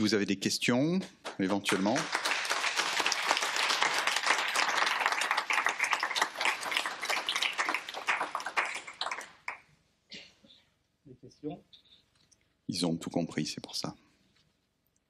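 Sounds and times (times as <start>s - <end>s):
audience applauding: 1.2s - 9.7s.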